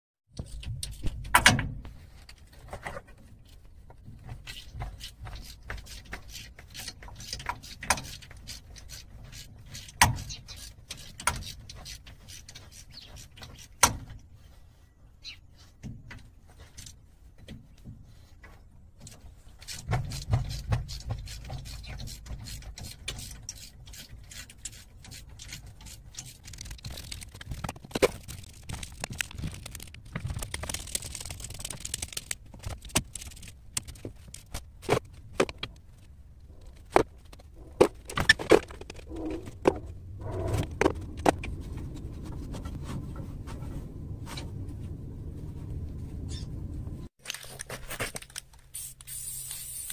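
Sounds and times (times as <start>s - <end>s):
steady low rumble: 26.8s - 47.1s.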